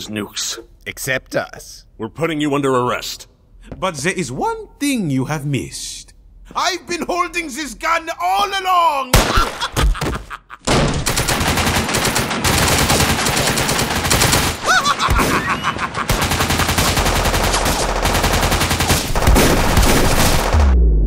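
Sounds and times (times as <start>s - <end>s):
rapid automatic gunfire: 10.9s - 20.7s.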